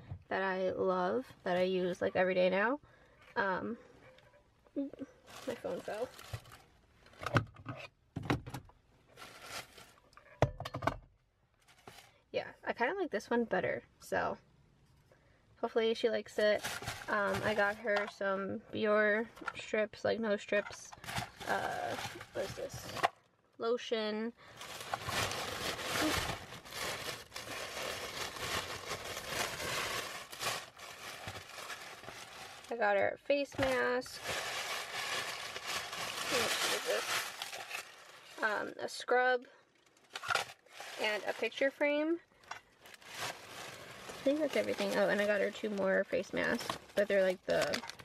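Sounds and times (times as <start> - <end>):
tissue paper rustling: 9.2 - 10.0, 16.4 - 17.8, 24.5 - 32.8, 33.6 - 38.6, 40.0 - 41.6, 42.8 - 48.0.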